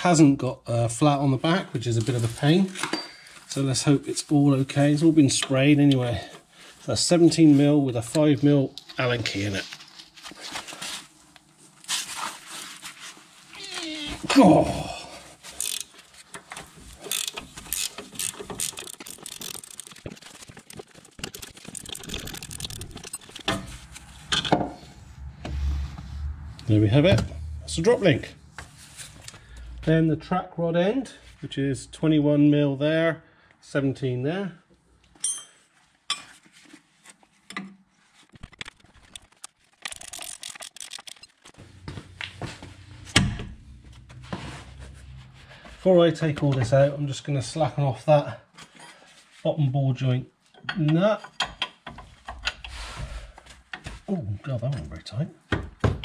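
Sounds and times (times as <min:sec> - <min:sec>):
ratchet spanner clicking: 0:15.6 - 0:15.9, 0:17.0 - 0:20.0, 0:21.3 - 0:23.6, 0:39.8 - 0:41.3
steel tools clinking: 0:35.2 - 0:36.3.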